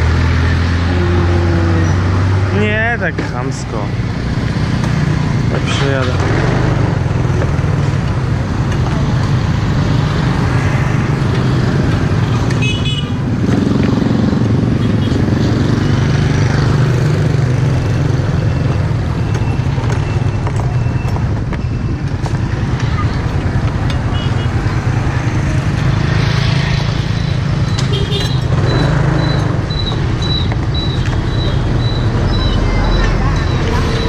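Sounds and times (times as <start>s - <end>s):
short high beeps: 28.6s - 34.0s.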